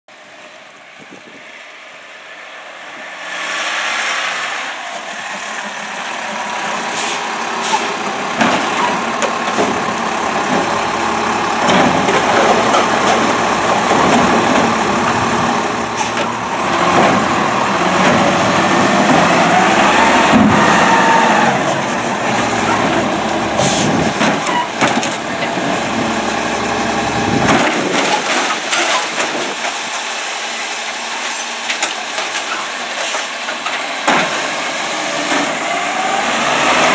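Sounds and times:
garbage truck engine revving: 0:02.3 - 0:36.9
hydraulic whine: 0:19.3 - 0:25.2.

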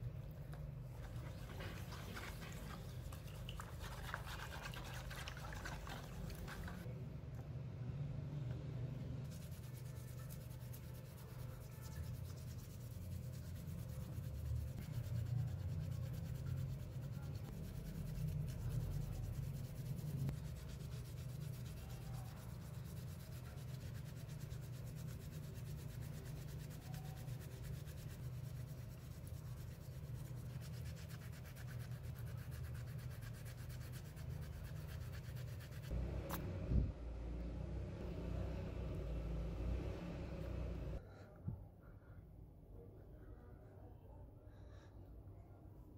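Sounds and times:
scratchy scrubbing in water: 0:00.9 - 0:06.9, 0:09.3 - 0:36.0.

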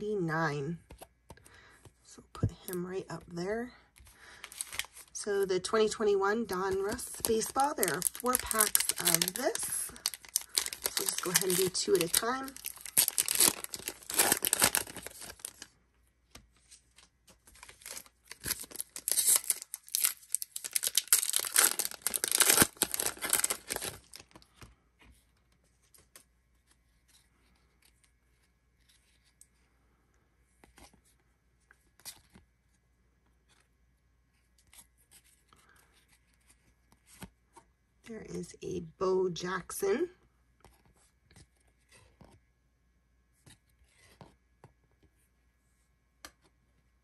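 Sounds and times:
foil wrappers crinkling and tearing: 0:04.2 - 0:05.2, 0:06.7 - 0:15.7, 0:17.5 - 0:24.5.

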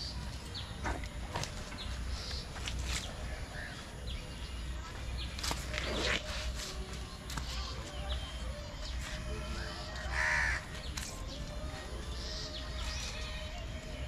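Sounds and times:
crow cawing: 0:10.1 - 0:10.6.

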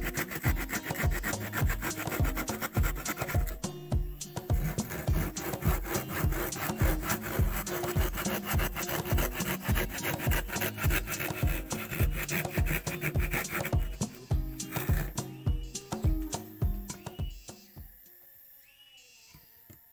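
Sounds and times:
handsaw cutting wood: 0:00.0 - 0:03.8, 0:04.4 - 0:16.0.

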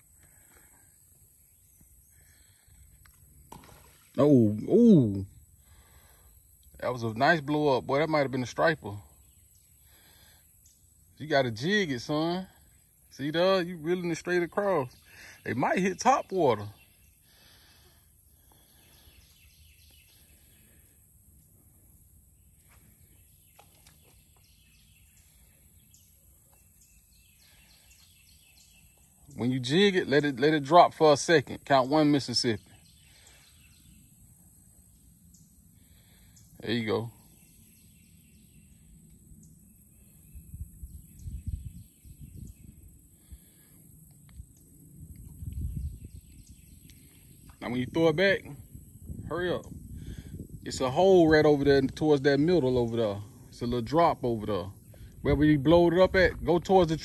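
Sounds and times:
faint bird chirps: 0:00.0 - 0:56.2
faint bird calls: 0:09.1 - 0:30.4.

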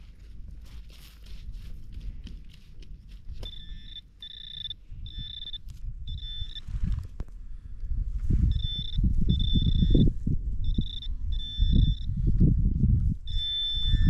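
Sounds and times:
low rumbling of handling and wind: 0:00.0 - 0:14.0
pinpointer probe beeping: 0:03.4 - 0:06.7, 0:08.5 - 0:12.1, 0:13.2 - 0:14.0.

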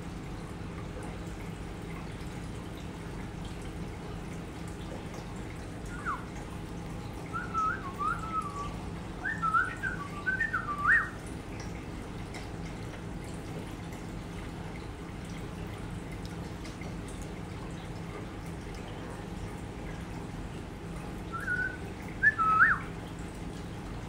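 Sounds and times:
aquarium trickle and hum: 0:00.0 - 0:24.0
sliding whistled notes: 0:07.4 - 0:11.2, 0:21.4 - 0:22.8.

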